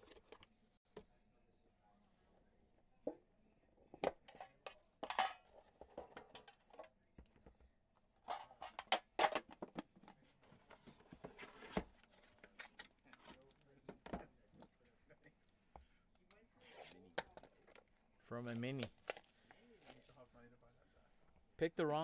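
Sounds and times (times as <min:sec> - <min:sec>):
cards and plastic rustling: 0:17.6 - 0:20.2.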